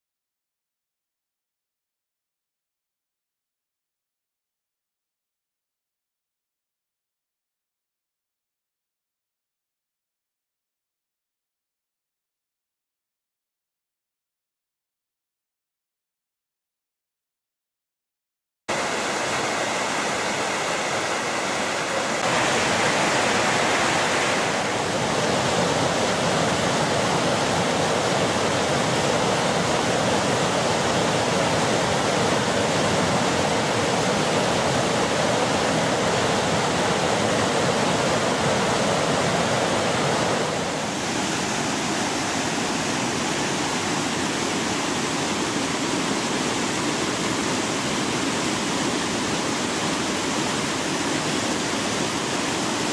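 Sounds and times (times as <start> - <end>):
heavy rain pouring: 18.7 - 52.9
waterfall crashing over rocks: 18.7 - 52.9.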